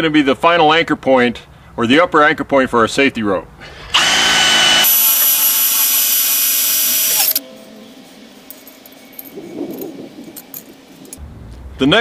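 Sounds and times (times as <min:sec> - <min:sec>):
cordless drill boring metal: 0:03.9 - 0:07.4
faint handling noises: 0:08.5 - 0:11.7.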